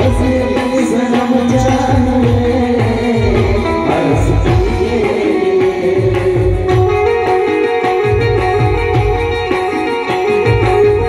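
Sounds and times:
woman singing: 0:00.0 - 0:07.7
live band dance music: 0:00.0 - 0:11.0
steady drum beat: 0:00.0 - 0:11.0.

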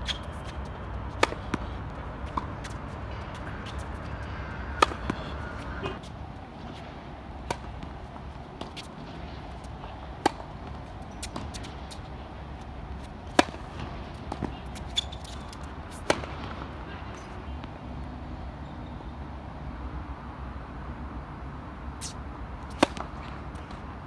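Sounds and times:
racket hitting ball: 0:00.0 - 0:16.8, 0:22.0 - 0:23.9.

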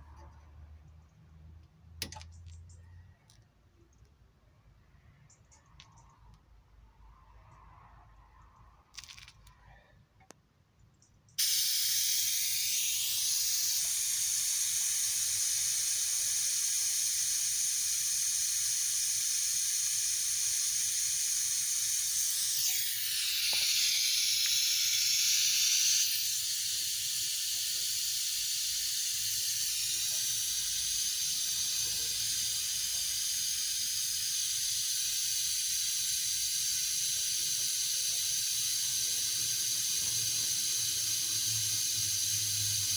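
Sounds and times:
faint clicks: 0:05.2 - 0:06.5
brake bleeding tool hissing: 0:11.4 - 0:42.9.

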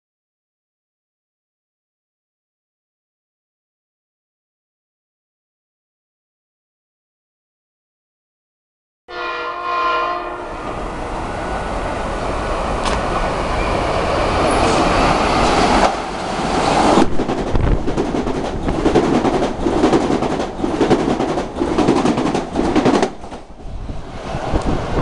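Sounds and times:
train passing at speed: 0:09.1 - 0:25.0.

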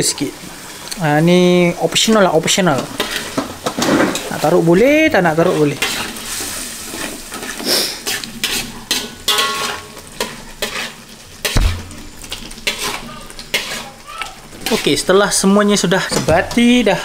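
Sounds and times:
food sizzling: 0:00.0 - 0:17.0
metal spatula scraping a wok: 0:02.0 - 0:15.1
dull thump: 0:11.6 - 0:12.0.

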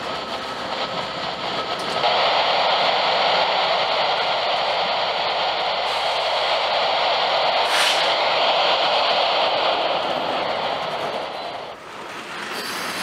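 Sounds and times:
train wheels rushing on rails: 0:00.0 - 0:13.0.

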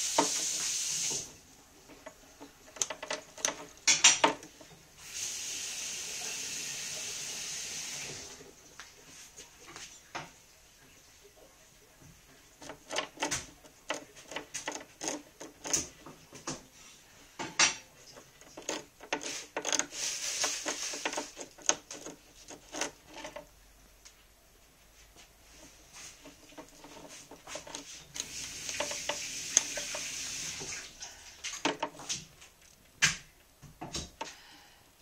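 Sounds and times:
rabbit gnawing hard bread: 0:00.0 - 0:04.8, 0:11.9 - 0:24.0, 0:25.0 - 0:33.4.

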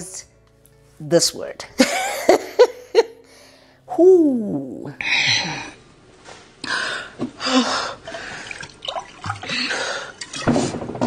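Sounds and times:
liquid pouring into glass: 0:08.3 - 0:10.4
person gulping drink: 0:08.4 - 0:10.5.

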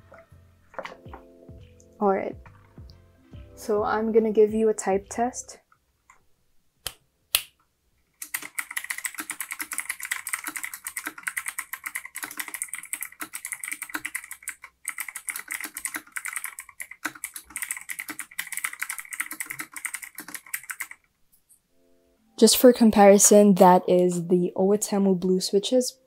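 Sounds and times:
fast typing on clicky keyboard: 0:08.2 - 0:21.1.

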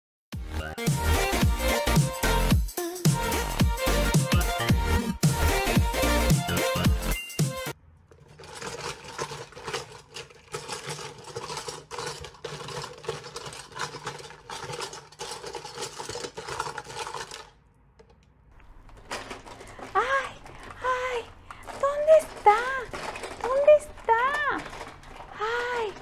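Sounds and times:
rummaging through plastic toys: 0:08.0 - 0:26.0.

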